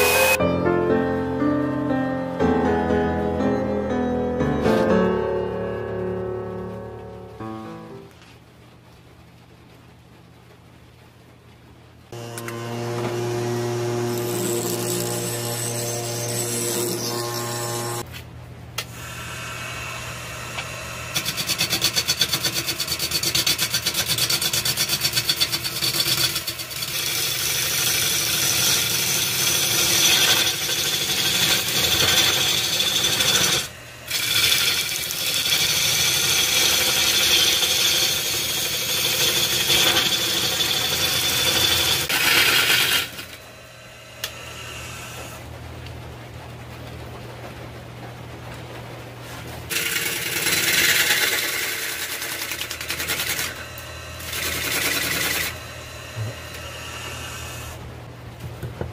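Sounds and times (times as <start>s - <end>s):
bench grinder motor humming: 12.2s - 18.0s, 19.4s - 43.4s, 49.7s - 57.7s
gouge cutting wood on a lathe: 12.2s - 18.0s, 19.0s - 43.4s, 49.7s - 57.8s
lathe motor hum: 12.2s - 18.0s, 19.0s - 45.4s, 49.7s - 57.8s.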